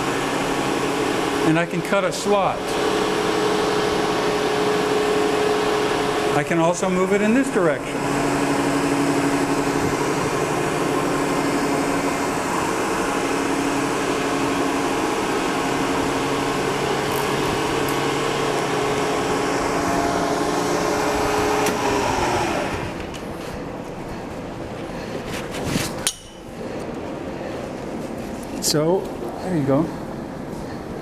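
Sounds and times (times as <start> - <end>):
spindle winding down: 0.0 - 23.2
end mill cutting plastic: 0.0 - 23.4
milling machine spindle humming: 0.0 - 25.3.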